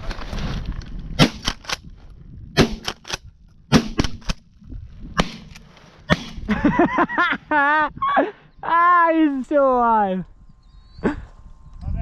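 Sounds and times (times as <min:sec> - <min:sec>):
shotgun firing: 0:01.2 - 0:01.8, 0:02.6 - 0:04.4, 0:05.2 - 0:06.4.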